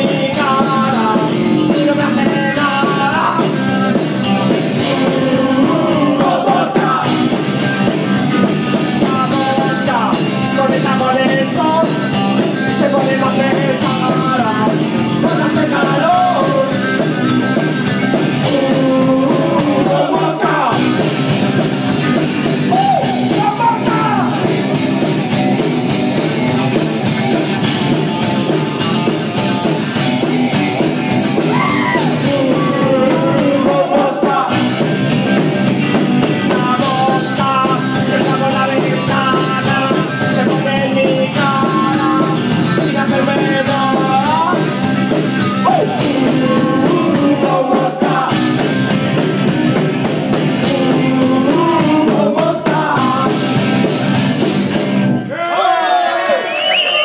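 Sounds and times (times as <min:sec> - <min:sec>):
person singing: 0:00.0 - 0:07.6, 0:08.7 - 0:17.2, 0:18.2 - 0:21.0, 0:31.4 - 0:34.8, 0:36.4 - 0:44.9, 0:45.6 - 0:48.8, 0:50.5 - 0:53.9
electric guitar: 0:00.0 - 0:55.3
live rock band playing: 0:00.0 - 0:55.3.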